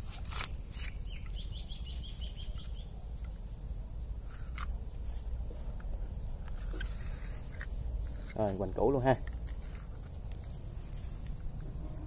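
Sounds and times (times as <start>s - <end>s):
low outdoor rumble: 0.0s - 12.0s
small bird chirping: 0.3s - 3.6s.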